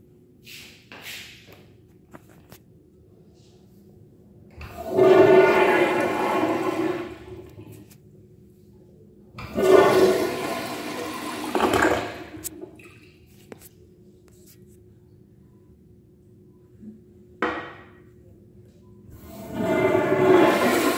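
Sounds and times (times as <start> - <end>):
toilet flushing: 4.6 - 7.6, 9.4 - 12.8, 19.1 - 20.9.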